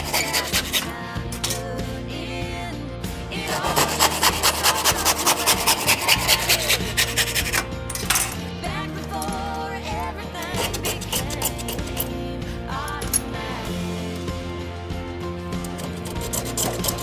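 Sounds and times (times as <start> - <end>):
hand saw cutting wood: 0.0 - 1.5, 3.4 - 7.7, 10.4 - 12.2, 15.7 - 17.0
pop song with singing: 0.0 - 17.0.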